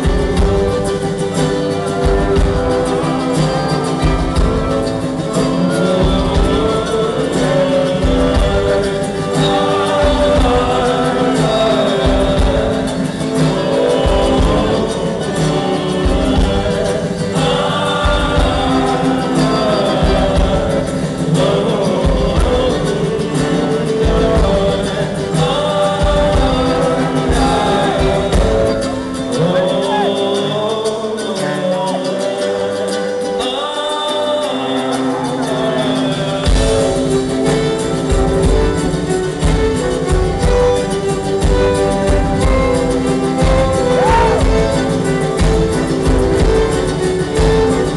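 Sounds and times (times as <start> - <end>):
bass drum beat: 0.0 - 29.0, 36.5 - 47.9
accordion: 0.0 - 47.9
mandolin: 0.0 - 47.9
ukulele: 0.0 - 47.9
trumpet: 42.1 - 46.4.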